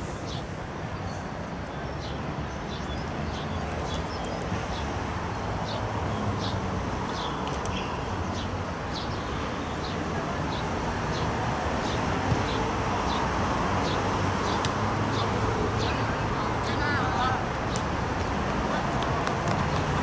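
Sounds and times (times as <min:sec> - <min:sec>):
football crowd noise: 0:09.2 - 0:20.0.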